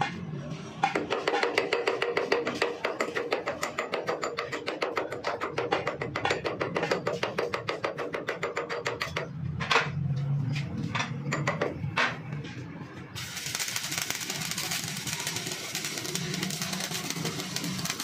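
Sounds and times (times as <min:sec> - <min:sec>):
welding arc crackling hiss: 0:13.2 - 0:18.0.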